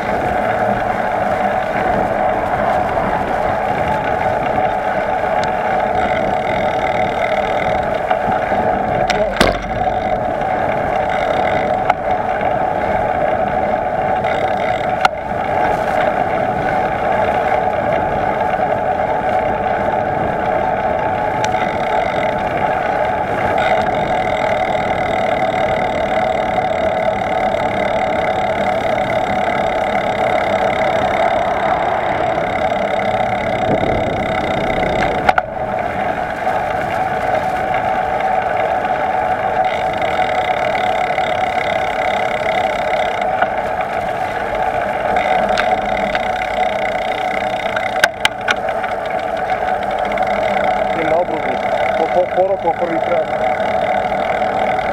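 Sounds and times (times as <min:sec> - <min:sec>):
road and wind noise: 0:00.0 - 0:54.9
sharp knocks from bumps: 0:09.1 - 0:10.1.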